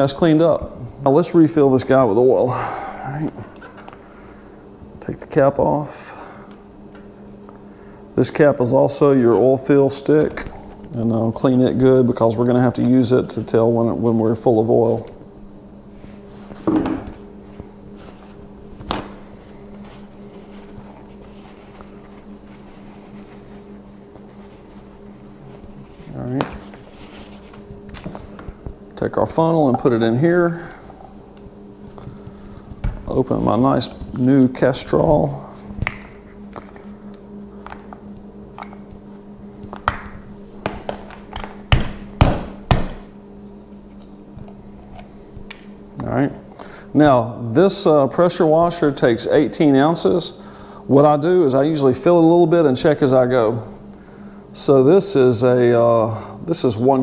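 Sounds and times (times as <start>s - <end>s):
low mechanical hum: 0.0s - 57.0s
paper towel rustling: 15.9s - 28.7s.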